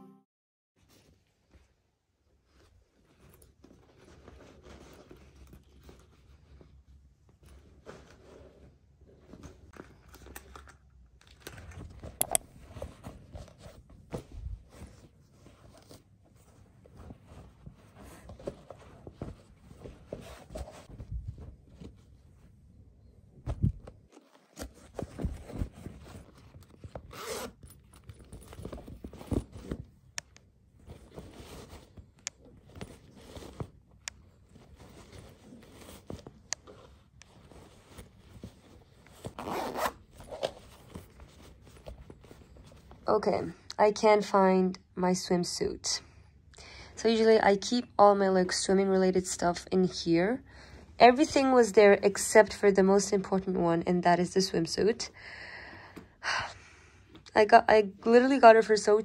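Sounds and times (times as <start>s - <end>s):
fabric rustling: 11.6s - 43.1s
zipper being pulled: 24.2s - 29.7s, 37.5s - 42.7s.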